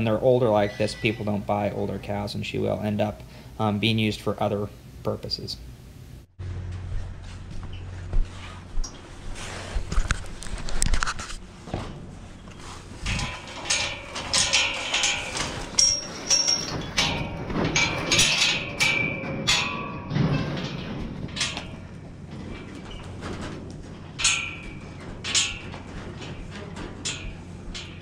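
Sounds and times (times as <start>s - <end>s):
metal gates clanking and rattling: 11.6s - 28.0s.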